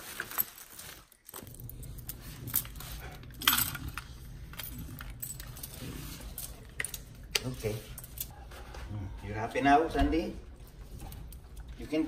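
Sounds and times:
metal chain leash jangling: 0.2s - 8.3s.

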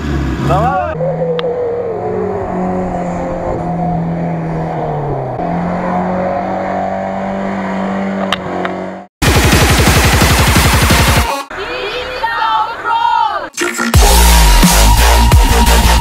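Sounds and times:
off-road vehicle engine accelerating: 0.0s - 9.1s.

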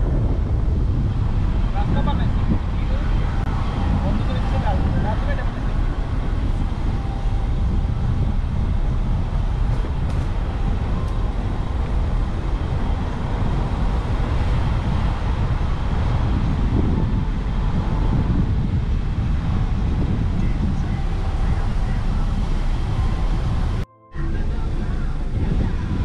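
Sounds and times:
car engine and tyre rumble: 0.0s - 26.0s.

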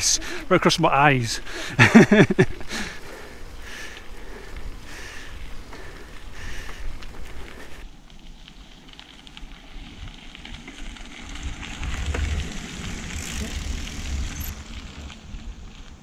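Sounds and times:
bike tyres crunching on gravel: 0.0s - 16.0s
wind rumble on microphone: 9.7s - 16.0s.

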